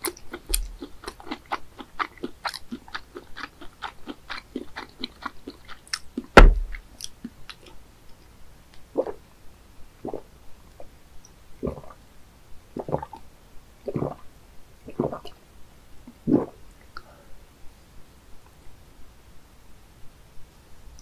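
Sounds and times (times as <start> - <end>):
person gulping water: 0.0 - 5.8, 9.0 - 9.2, 10.0 - 10.3, 11.6 - 12.0, 12.8 - 13.2, 13.8 - 15.4, 16.1 - 16.7.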